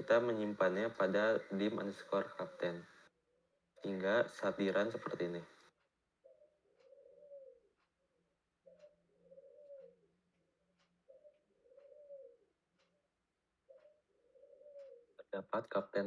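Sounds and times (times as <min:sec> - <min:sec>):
dove cooing: 0:06.2 - 0:07.8, 0:08.6 - 0:10.2, 0:11.0 - 0:12.5, 0:13.7 - 0:15.3.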